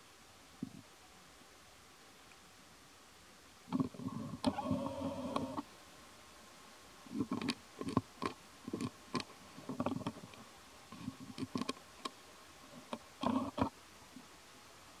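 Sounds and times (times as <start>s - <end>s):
monkey chewing and crunching seeds: 7.1s - 12.2s.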